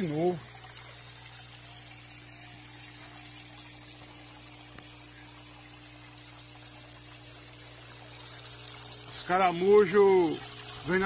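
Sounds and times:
pump hum: 0.0s - 11.0s
water pouring and splashing: 0.0s - 11.0s.

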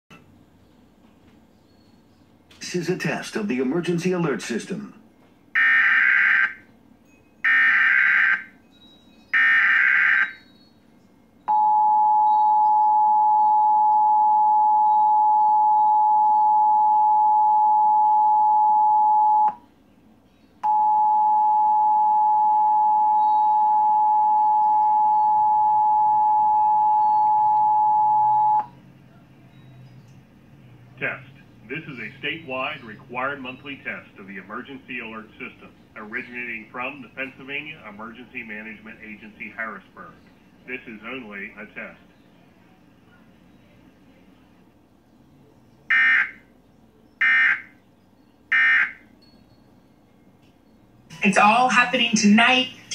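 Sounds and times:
steady two-tone alert signal: 7.4s - 8.6s, 9.4s - 10.5s, 20.6s - 28.7s, 48.5s - 49.1s.

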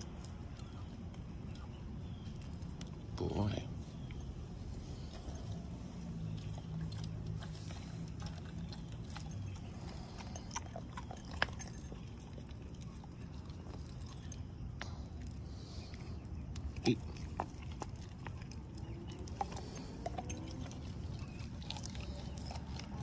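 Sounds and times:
dog chewing and tearing meat: 6.1s - 23.0s.

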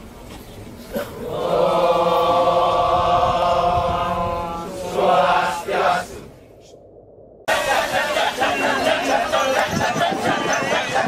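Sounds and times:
chanting: 1.2s - 6.4s, 7.5s - 11.0s.

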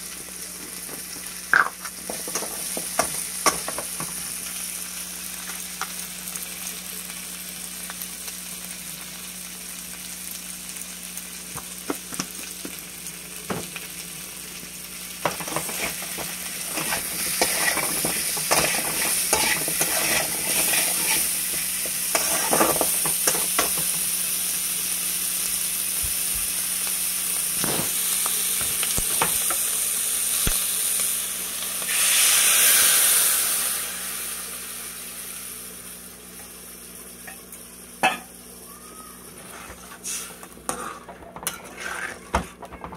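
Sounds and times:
vegetables sizzling in oil: 0.0s - 42.4s
metal spatula scraping pan: 16.7s - 21.4s, 22.1s - 23.4s, 39.4s - 42.6s
liquid poured into hot pan: 31.9s - 35.3s.

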